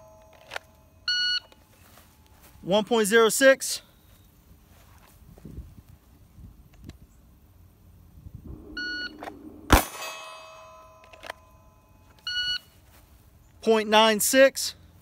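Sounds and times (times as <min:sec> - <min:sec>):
ringing tone: 0:00.0 - 0:01.9, 0:08.5 - 0:12.8
pistol shot: 0:08.5 - 0:10.5
shot timer beep: 0:08.7 - 0:09.5.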